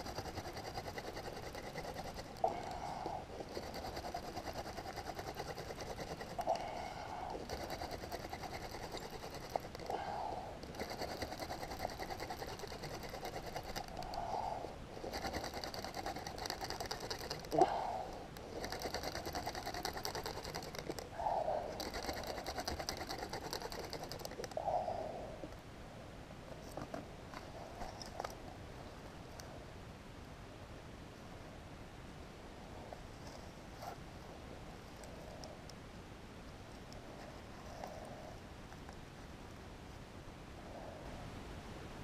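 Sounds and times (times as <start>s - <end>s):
wooden spindle rasping in hearth board: 0.0s - 2.5s, 3.4s - 9.9s, 10.7s - 14.0s, 15.0s - 17.6s, 18.6s - 21.0s, 21.8s - 24.3s.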